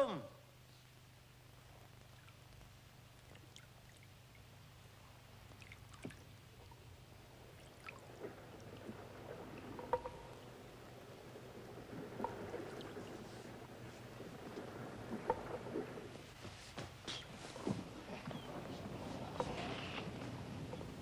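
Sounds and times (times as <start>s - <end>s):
low steady hum: 0.0s - 21.0s
water dripping and lapping: 1.7s - 21.0s.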